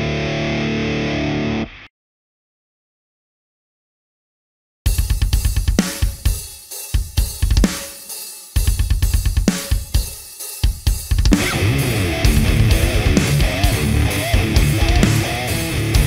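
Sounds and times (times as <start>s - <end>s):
distorted electric guitar riff: 0.0s - 1.9s, 11.3s - 16.0s
drums with fast bass drum: 4.9s - 16.0s.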